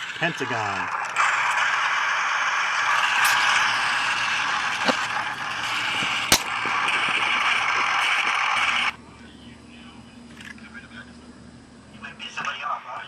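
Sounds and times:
steady rushing hiss: 0.7s - 8.9s
sharp clicks: 6.0s - 7.1s.

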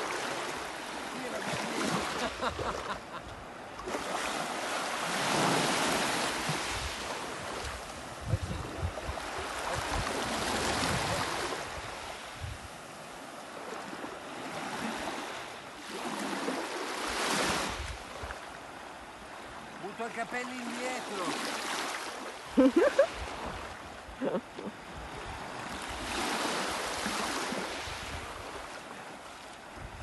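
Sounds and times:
small waves washing ashore: 0.0s - 30.0s
wind rumbling on microphone: 6.5s - 13.0s, 27.8s - 28.6s, 29.7s - 30.0s.

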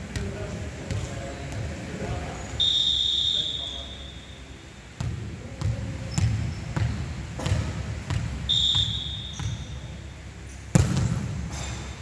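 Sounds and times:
whistle blast: 2.6s - 4.4s, 8.5s - 9.8s
volleyball bouncing on hardwood: 5.0s - 9.6s, 10.7s - 11.7s.

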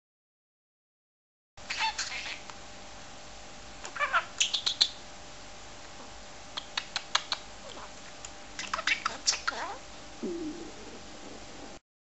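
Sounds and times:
budgerigar talking: 1.7s - 2.4s, 3.9s - 5.0s, 8.6s - 9.8s.

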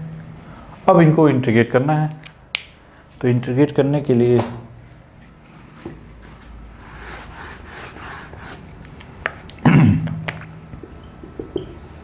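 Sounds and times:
duster wiping whiteboard: 6.7s - 8.8s.

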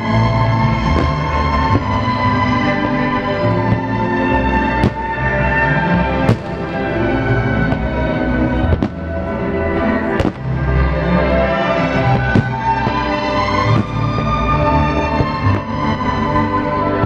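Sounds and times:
orchestral music: 0.0s - 17.0s.

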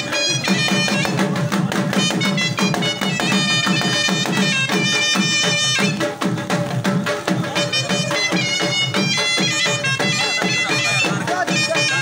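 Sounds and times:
fast steady drum beat: 0.0s - 12.0s.

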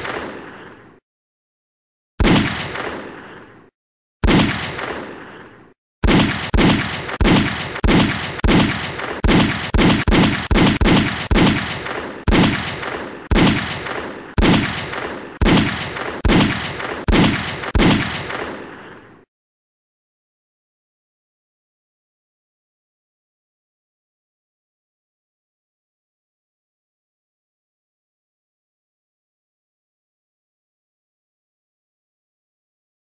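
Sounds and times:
gunshots with echoing tail: 0.0s - 1.0s, 2.2s - 19.3s.

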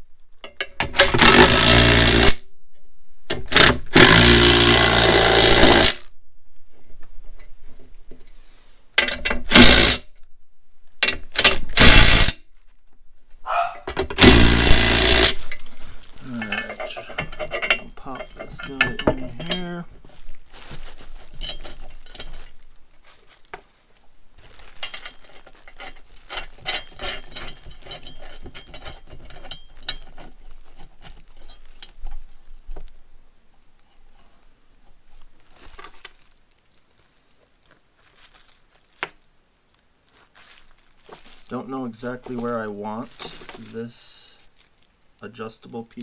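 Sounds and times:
metal brackets and bolts clinking: 0.4s - 4.8s, 9.0s - 10.0s, 11.0s - 19.9s, 21.2s - 22.6s, 24.5s - 32.3s
cordless drill spinning: 1.2s - 2.4s, 3.6s - 6.0s, 9.5s - 10.0s, 14.2s - 15.4s.

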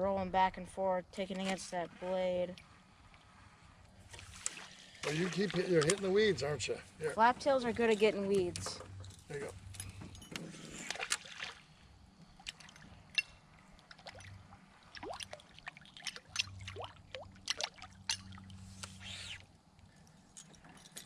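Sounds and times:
lure tail blade slapping water: 4.1s - 6.1s, 10.8s - 19.0s
small plops and gurgles: 10.9s - 18.6s.

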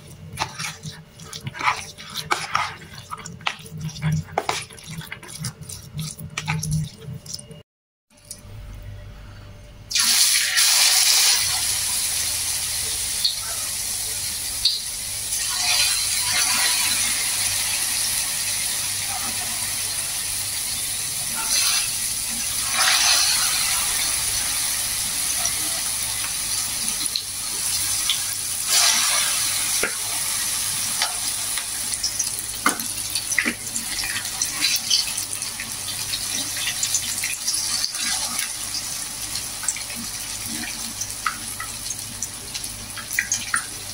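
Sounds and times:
batter sizzling in hot oil: 0.0s - 7.6s, 9.9s - 43.9s.

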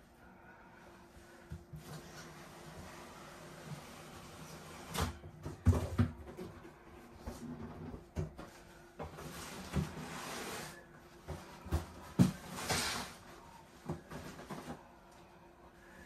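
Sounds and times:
cardboard scraping against cardboard: 9.1s - 11.0s, 11.6s - 13.3s.

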